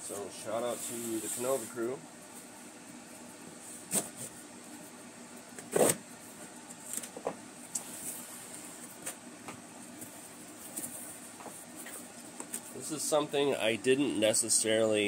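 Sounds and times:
knife cutting packing tape: 5.7s - 6.0s.

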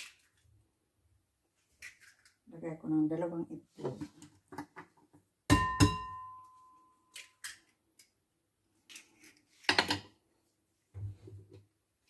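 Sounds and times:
bowl ringing: 5.6s - 7.0s.

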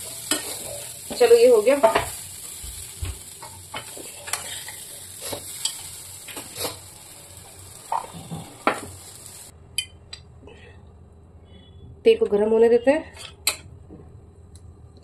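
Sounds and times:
oil sizzling: 0.0s - 9.9s.

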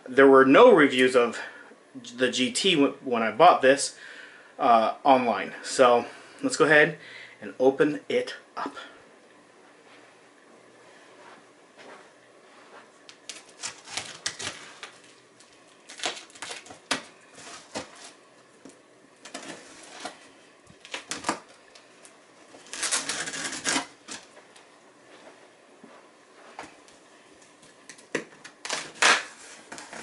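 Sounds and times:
tape pulled by hand: 13.1s - 15.1s, 15.9s - 18.2s, 22.6s - 24.3s, 28.4s - 30.0s
knife scraping packing tape: 13.3s - 14.9s, 15.9s - 18.2s, 19.3s - 20.2s, 22.6s - 24.2s, 28.6s - 30.0s.

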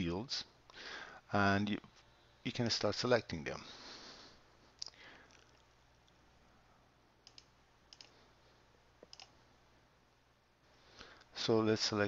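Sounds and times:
quiet background hum: 0.0s - 12.0s
computer mouse clicks: 7.2s - 8.2s, 9.0s - 9.3s.

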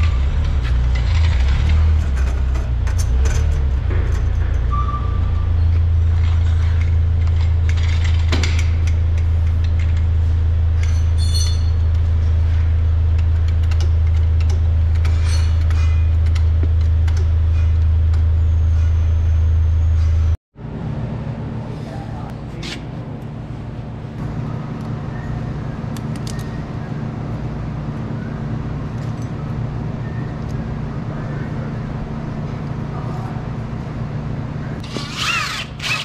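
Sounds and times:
low machine hum: 0.0s - 36.0s
metal clinks and knocks: 0.6s - 10.1s, 10.7s - 12.3s.

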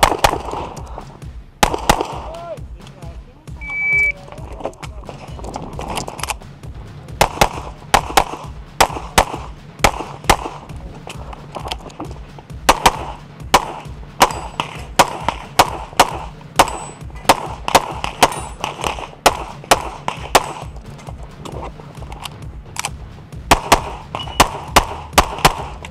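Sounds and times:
rapid pistol shots: 0.0s - 0.9s, 1.6s - 2.3s, 7.1s - 10.8s, 11.6s - 21.7s, 22.8s - 25.9s.

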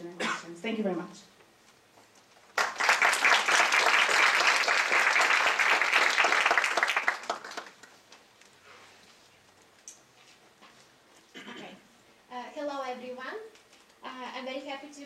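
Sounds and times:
people applauding: 2.5s - 8.0s.

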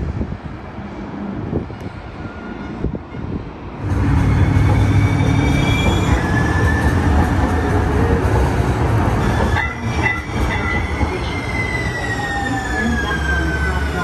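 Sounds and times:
wind on microphone: 0.0s - 4.4s
light rail train rumbling and whining: 0.0s - 14.0s.

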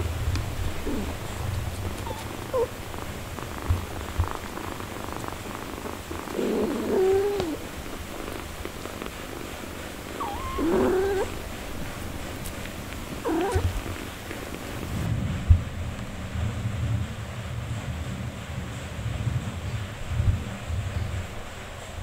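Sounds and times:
cat purring: 0.0s - 15.1s
kittens mewing: 0.7s - 9.1s, 10.1s - 15.1s.

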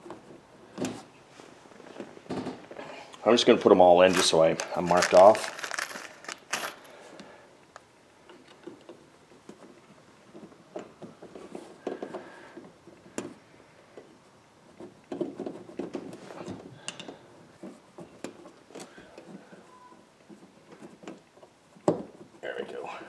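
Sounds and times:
fingers handling plastic: 4.0s - 6.7s.

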